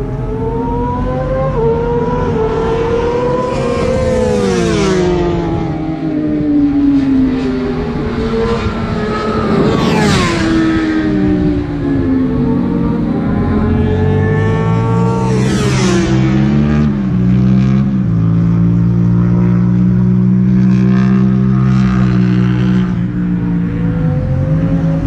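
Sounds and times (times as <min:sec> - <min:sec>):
distant car engines: 0:00.0 - 0:25.0
race car passing by: 0:02.0 - 0:18.4.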